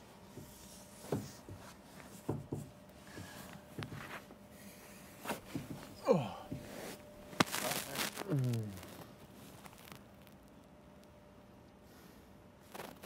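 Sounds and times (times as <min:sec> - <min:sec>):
faint rubbing on cushion: 0:00.0 - 0:09.9.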